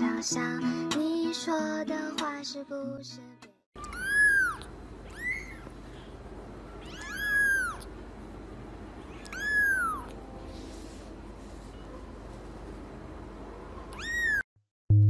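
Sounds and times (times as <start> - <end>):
kitten mewing: 3.8 - 5.7, 6.8 - 7.9, 9.1 - 10.2, 13.9 - 14.4.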